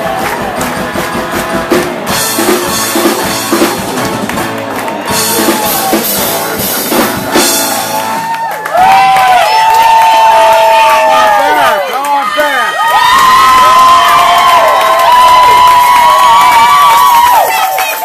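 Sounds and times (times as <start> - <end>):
live rock band playing: 0.0 - 9.2
audience cheering and screaming: 4.7 - 6.7, 7.3 - 18.0.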